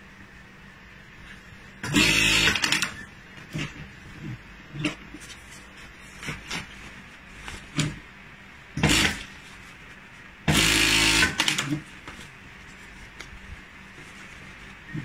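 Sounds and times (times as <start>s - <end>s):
sewing machine running: 1.8s - 3.0s, 8.8s - 9.3s, 10.5s - 11.8s
fabric rustling: 5.1s - 7.8s, 11.8s - 15.0s.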